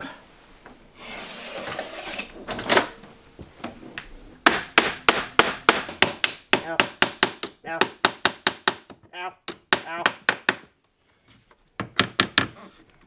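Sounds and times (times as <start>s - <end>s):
hammer striking nails into wood: 4.4s - 10.7s.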